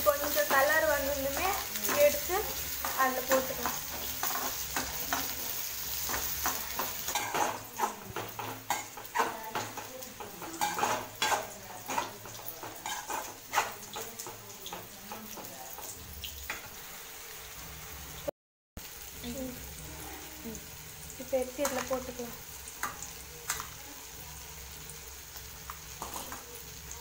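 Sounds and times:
spoon scraping metal pan: 1.3s - 14.4s.

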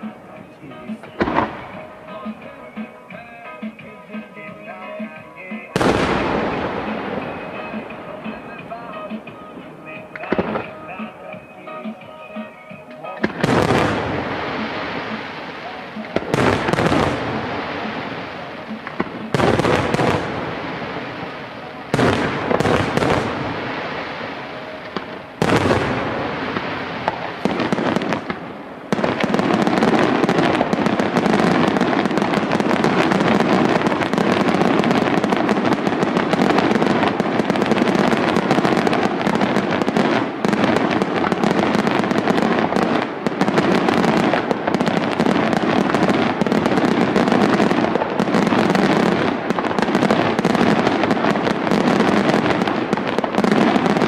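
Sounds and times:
firework shells bursting: 1.0s - 2.5s, 5.0s - 11.2s.

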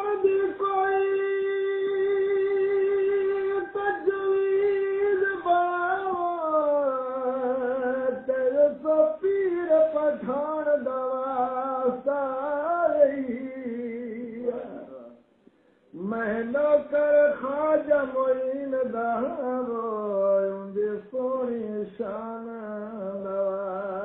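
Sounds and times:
man singing unaccompanied: 0.0s - 15.3s, 15.9s - 24.0s.

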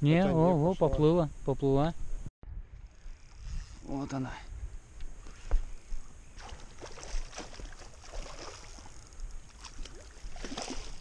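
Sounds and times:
light splashes and clicks: 6.4s - 11.0s
small waves lapping on shore: 6.4s - 11.0s.

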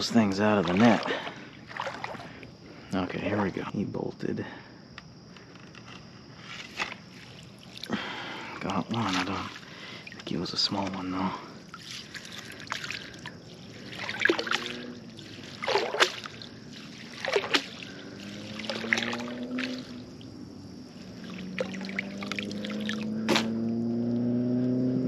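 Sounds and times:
sharp splashes: 0.0s - 2.4s, 7.1s - 23.5s
water splashing and dripping: 0.0s - 2.5s, 6.8s - 23.5s.

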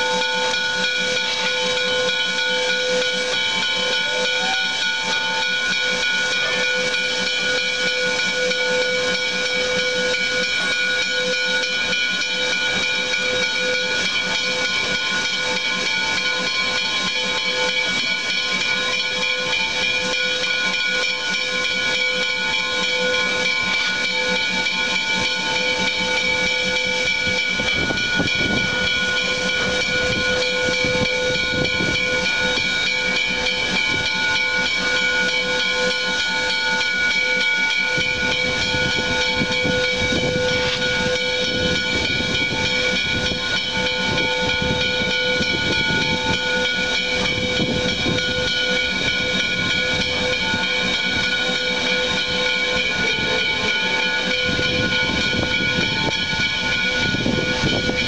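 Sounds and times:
steam locomotive venting steam: 0.0s - 58.0s.

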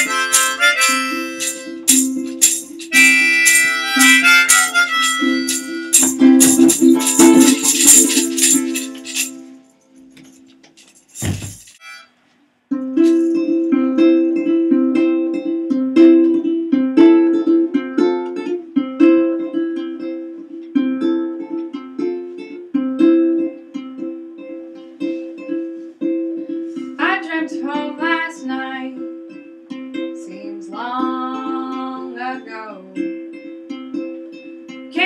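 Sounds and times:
accordion chords: 0.0s - 9.4s, 10.7s - 12.2s
harmonica phrases: 0.0s - 9.4s, 11.8s - 12.8s
ukulele strumming chords: 0.0s - 12.0s, 12.7s - 35.0s.

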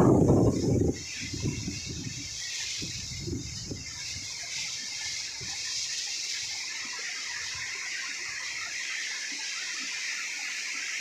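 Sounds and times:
wind buffeting microphone: 0.0s - 4.4s
wind and rain hiss: 0.0s - 11.0s.

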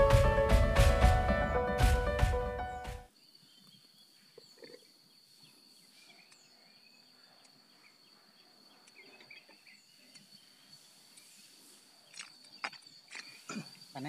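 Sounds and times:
insect high-pitched drone: 4.2s - 14.0s.

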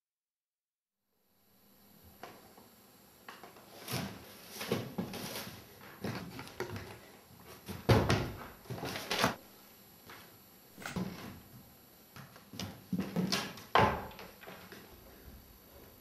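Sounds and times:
chair knocking and scraping: 12.6s - 14.6s.

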